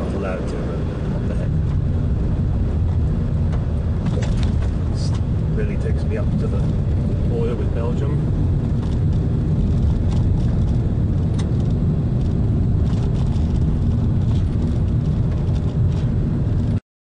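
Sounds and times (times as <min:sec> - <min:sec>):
car engine and road rumble: 0:00.0 - 0:16.8
gravel clicks and knocks: 0:08.6 - 0:16.8.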